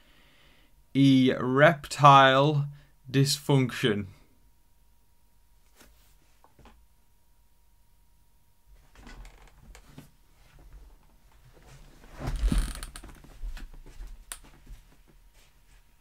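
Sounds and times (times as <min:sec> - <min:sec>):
gaming chair creaking: 0:08.9 - 0:10.1, 0:11.6 - 0:13.8.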